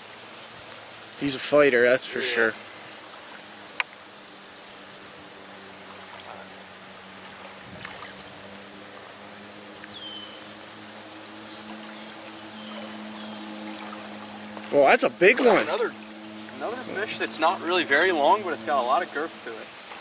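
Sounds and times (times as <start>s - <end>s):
creek water rushing: 0.0s - 20.0s
fish splashing: 11.5s - 16.6s.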